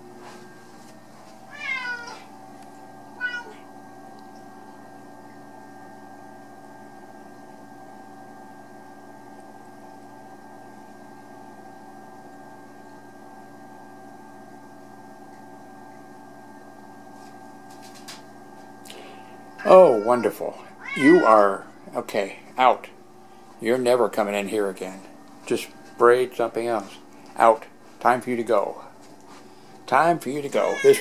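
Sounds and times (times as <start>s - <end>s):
steady hum: 0.0s - 31.0s
cat meowing: 1.5s - 2.3s, 3.2s - 3.6s, 19.6s - 21.4s, 30.5s - 31.0s.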